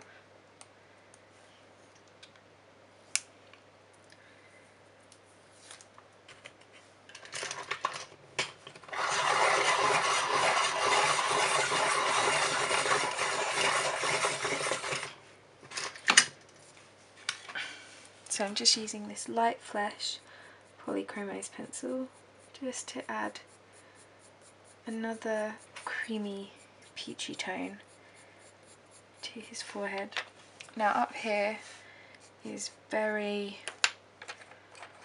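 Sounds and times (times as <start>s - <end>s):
pencil being sharpened: 9.0s - 15.1s, 20.8s - 29.8s.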